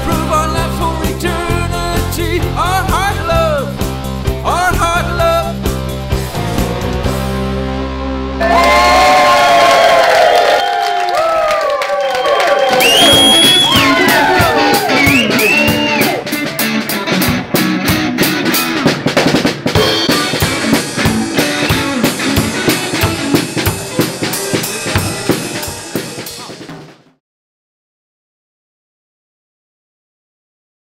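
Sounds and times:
drum kit beat: 0:00.0 - 0:07.4, 0:12.5 - 0:27.2
electric guitar and bass: 0:00.0 - 0:10.2, 0:13.0 - 0:25.5.

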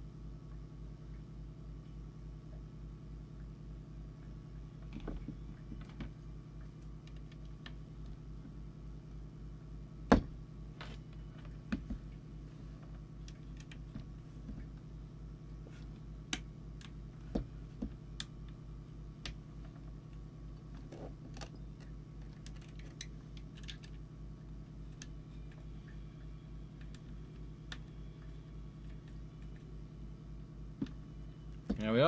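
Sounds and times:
pulsing low hum: 0:00.0 - 0:32.0.

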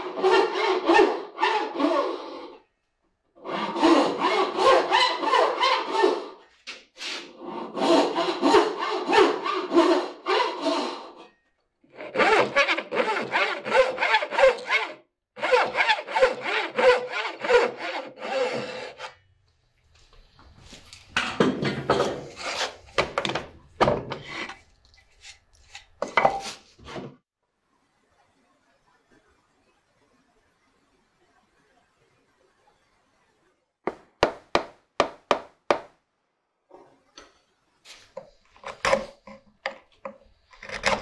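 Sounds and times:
hand saw cutting board: 0:00.0 - 0:02.6, 0:03.4 - 0:11.3, 0:11.9 - 0:19.2, 0:21.9 - 0:23.3, 0:37.9 - 0:41.0.

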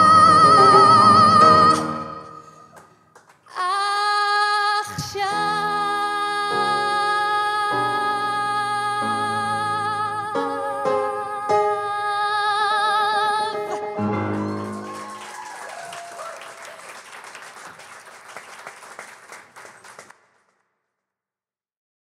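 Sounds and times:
musical accompaniment: 0:00.0 - 0:02.7, 0:05.3 - 0:15.2
woman singing with vibrato: 0:00.0 - 0:02.7, 0:03.5 - 0:13.8
audience applauding: 0:02.7 - 0:03.5, 0:14.0 - 0:20.6.

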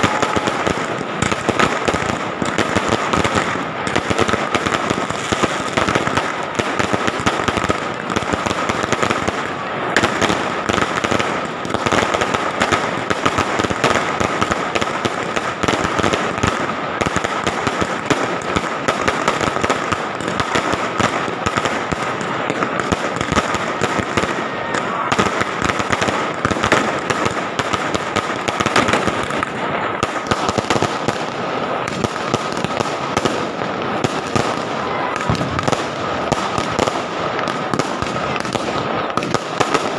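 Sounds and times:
fireworks cracking and popping: 0:00.0 - 0:39.9.

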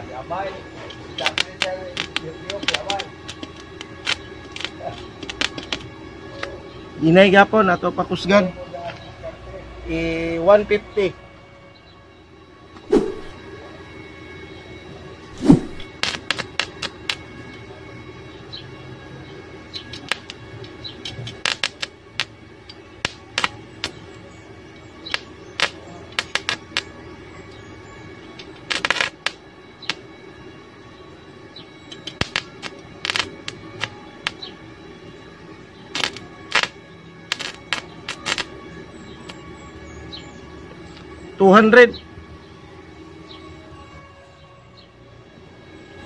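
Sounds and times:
welding arc crackling: 0:01.2 - 0:05.9, 0:13.0 - 0:13.4, 0:15.4 - 0:17.2, 0:19.9 - 0:24.3, 0:25.1 - 0:27.0, 0:28.4 - 0:30.0, 0:31.9 - 0:34.5, 0:35.8 - 0:38.6.

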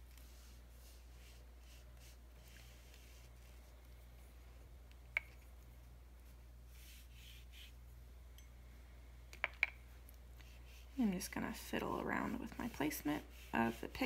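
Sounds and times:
brush stroking over paper: 0:00.0 - 0:04.6, 0:06.2 - 0:07.8, 0:10.3 - 0:14.0
low steady hum: 0:00.0 - 0:14.0.

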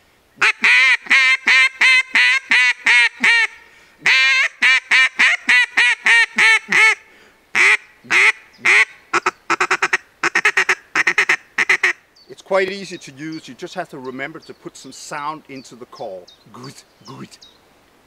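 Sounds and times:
duck call quacks: 0:00.4 - 0:07.0, 0:07.6 - 0:12.0.

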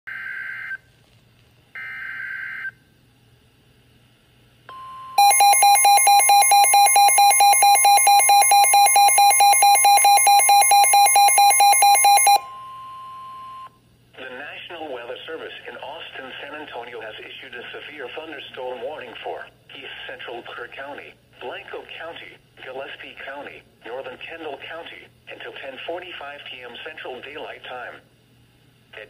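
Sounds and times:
steady warning alarm tone: 0:04.7 - 0:13.7
rapid pulsing beeps: 0:05.2 - 0:12.5.

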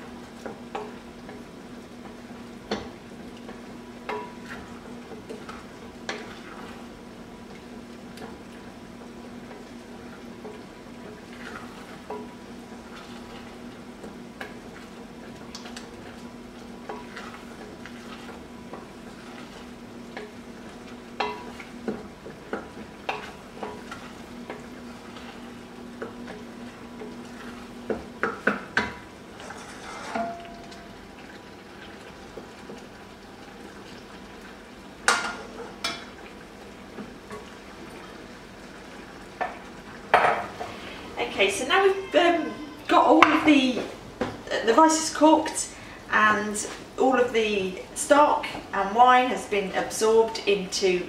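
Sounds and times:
rice bubbling in stock: 0:00.0 - 0:51.0
wooden spoon stirring rice: 0:02.0 - 0:30.5.

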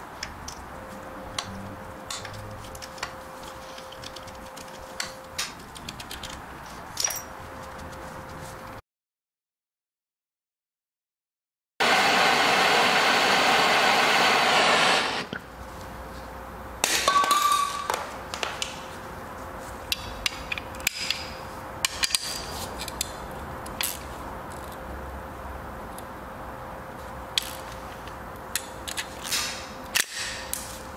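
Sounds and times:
metal tools clinking: 0:06.9 - 0:07.4
loud steady machine: 0:11.8 - 0:15.3.

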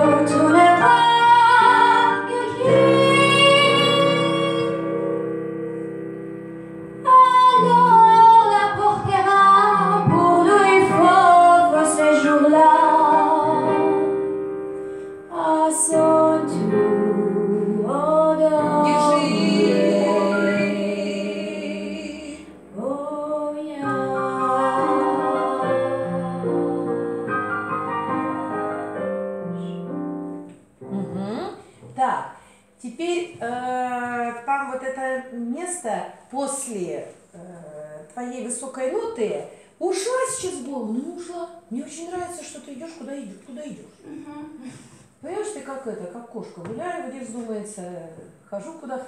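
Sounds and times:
woman singing into microphone: 0:00.0 - 0:04.8, 0:07.1 - 0:13.9, 0:15.3 - 0:27.0
digital piano: 0:00.0 - 0:32.4
singer breathing: 0:14.8 - 0:15.3.

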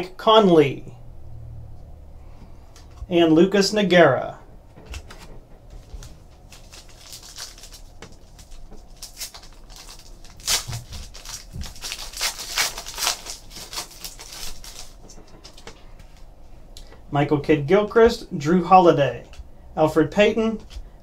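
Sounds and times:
foil wrapper crinkling and tearing: 0:04.9 - 0:15.8.

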